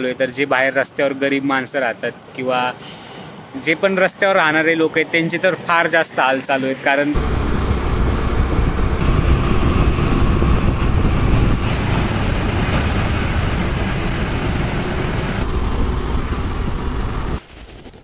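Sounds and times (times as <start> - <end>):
motorbike engine and road noise: 7.1 - 17.4
wind rushing over microphone: 7.2 - 18.0.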